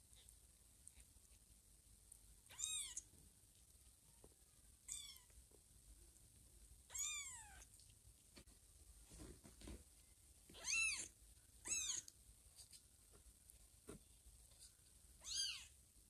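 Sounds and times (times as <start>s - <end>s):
kitten mewing: 10.6s - 12.1s.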